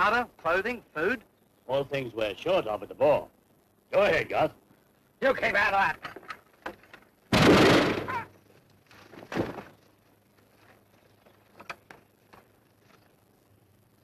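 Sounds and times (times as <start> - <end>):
loud gunshot: 7.3 - 8.3.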